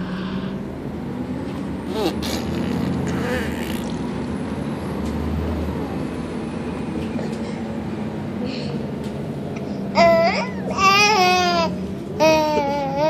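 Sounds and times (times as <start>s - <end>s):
bus engine rumble: 0.0s - 13.0s.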